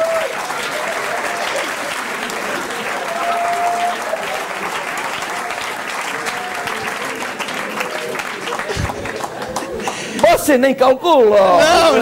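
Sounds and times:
audience applauding: 0:00.0 - 0:10.5
audience laughing: 0:03.8 - 0:05.6, 0:06.6 - 0:10.2.

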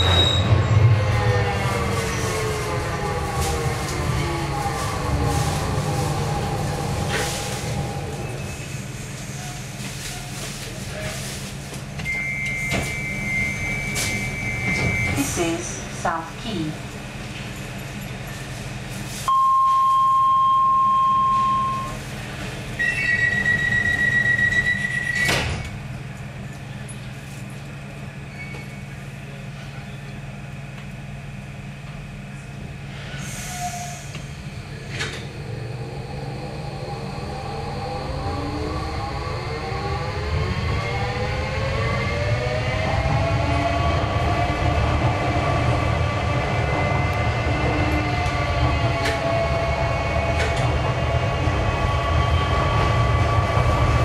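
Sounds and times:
train rumbling on track: 0:00.0 - 0:19.3, 0:21.0 - 0:54.0
high steady beep: 0:19.3 - 0:22.0
train door clunk: 0:24.6 - 0:25.8.

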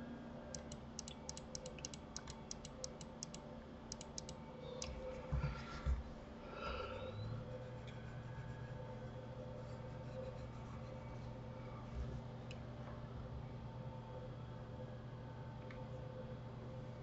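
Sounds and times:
faint steady hum: 0:00.0 - 0:17.0
computer clicks: 0:00.5 - 0:05.0.

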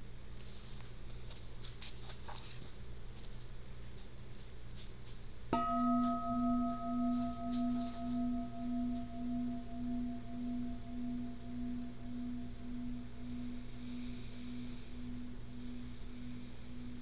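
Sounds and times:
singing bowl ringing: 0:05.5 - 0:17.0.

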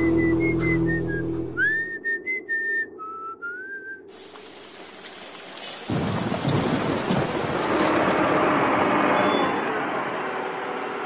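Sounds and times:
person whistling a tune: 0:00.0 - 0:04.1.

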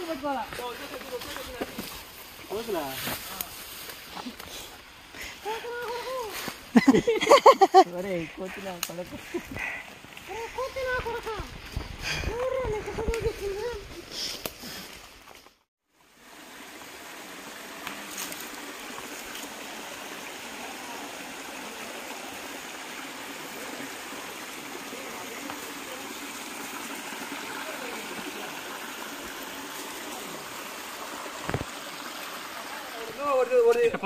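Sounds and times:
waterfall rushing: 0:16.2 - 0:34.0.

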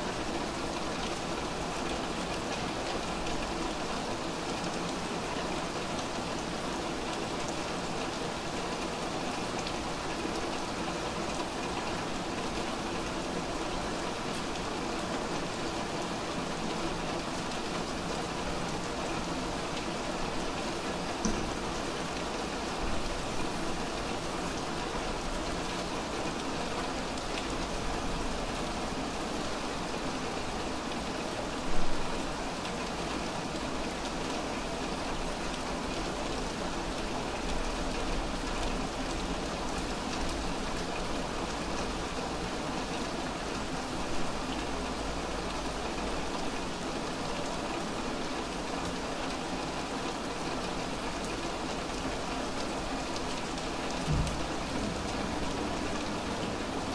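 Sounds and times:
rain falling on wet street: 0:00.0 - 0:56.9
sharp knock: 0:54.1 - 0:54.5.

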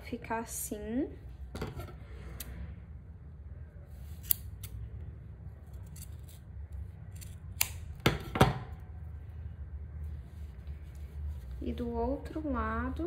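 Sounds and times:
scissors snipping: 0:04.2 - 0:04.8, 0:07.1 - 0:08.0.

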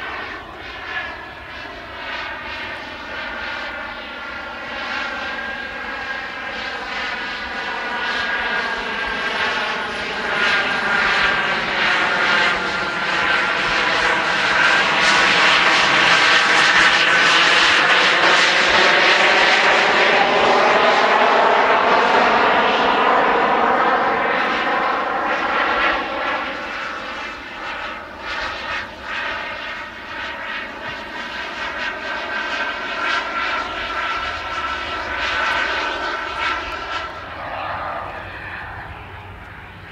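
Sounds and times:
model jet turbines in flight: 0:00.0 - 0:39.9.

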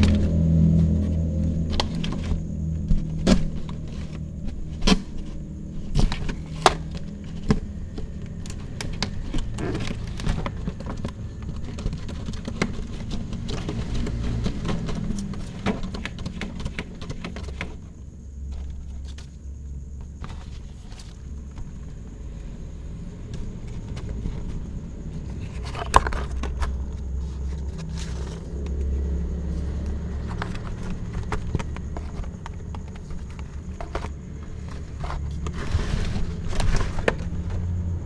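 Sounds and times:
low steady rumble: 0:00.0 - 0:17.0, 0:17.7 - 0:38.0
claws scratching paper and wood: 0:00.0 - 0:19.4, 0:29.5 - 0:37.6.

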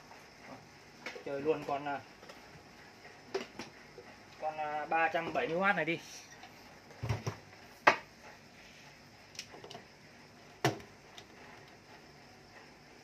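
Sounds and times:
water pump set down on workbench: 0:07.0 - 0:07.4.

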